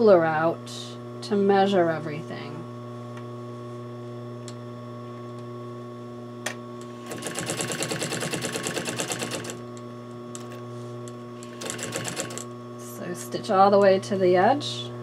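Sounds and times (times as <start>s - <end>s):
steady hum: 0.0s - 15.0s
sewing machine stitching: 7.0s - 9.6s, 11.4s - 12.4s.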